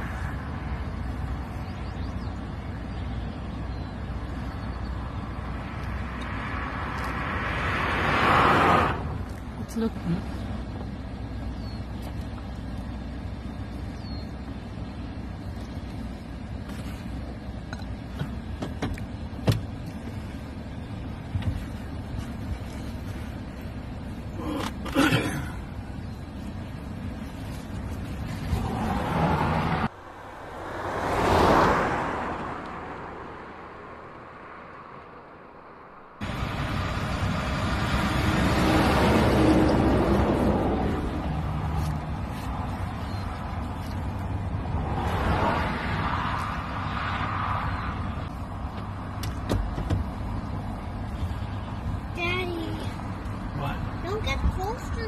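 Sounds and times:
low engine hum: 0.0s - 55.0s
motor vehicle rumble: 0.0s - 55.0s
steady road noise: 0.0s - 55.0s.

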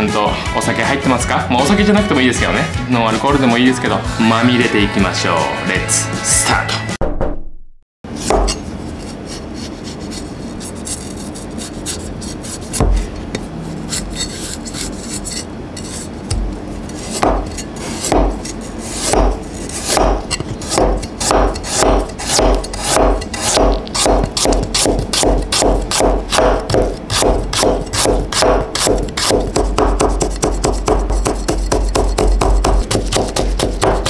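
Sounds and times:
knife striking cutting board: 8.1s - 8.8s, 12.5s - 34.0s
cleaver scraping ginger: 8.2s - 34.0s.

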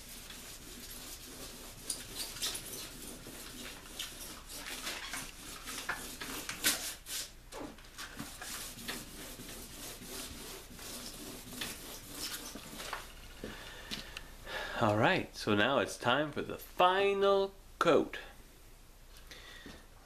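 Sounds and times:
sandpaper scratching: 0.0s - 7.4s, 8.2s - 12.9s.

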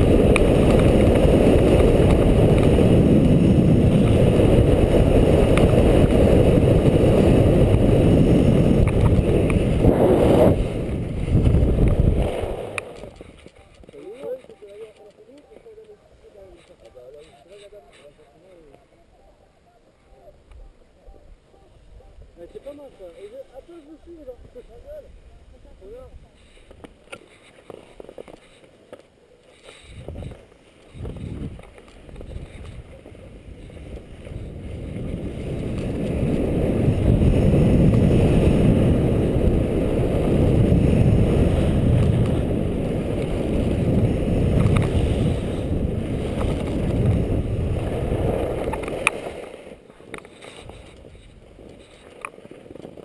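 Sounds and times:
wind rushing over microphone: 0.0s - 14.5s, 29.8s - 53.0s.

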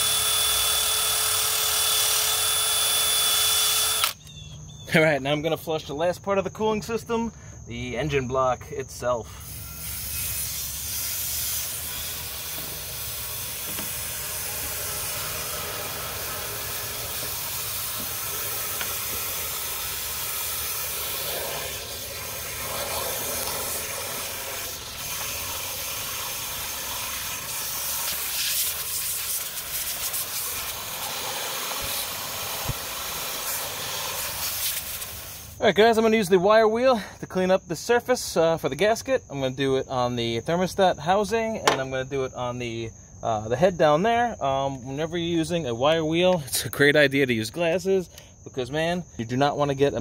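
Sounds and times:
hose water running into engine block: 9.5s - 35.5s.

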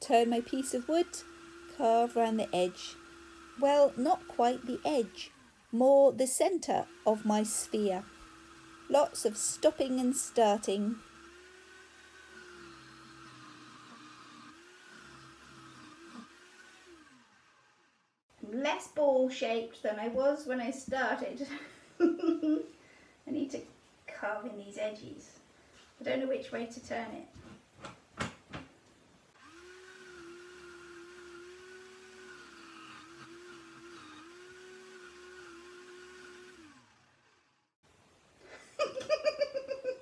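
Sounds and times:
lathe motor whine: 0.0s - 5.8s, 6.6s - 18.2s, 29.4s - 37.8s
chisel cutting spinning wood: 0.0s - 18.2s, 29.4s - 37.8s.

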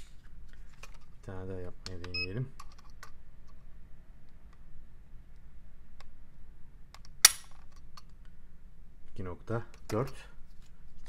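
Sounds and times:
pistol trigger snap: 7.0s - 7.6s.

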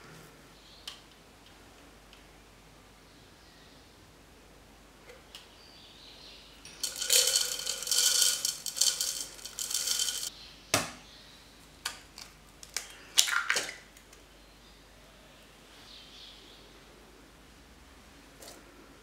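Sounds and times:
egg cracking: 6.7s - 10.3s
oats poured into plastic beaker: 6.7s - 10.3s.

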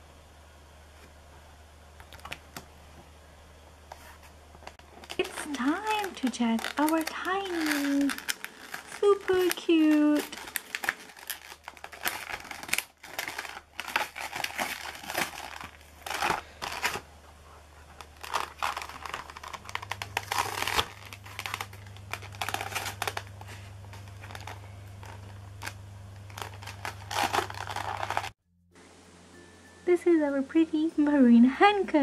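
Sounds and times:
plastic packaging crinkling: 3.9s - 28.4s.

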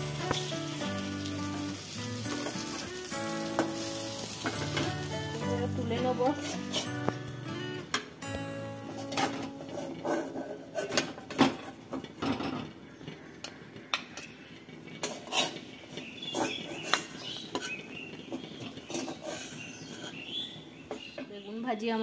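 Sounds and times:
metal spatula scraping a pan: 6.3s - 7.1s, 8.9s - 11.7s, 15.0s - 20.5s.

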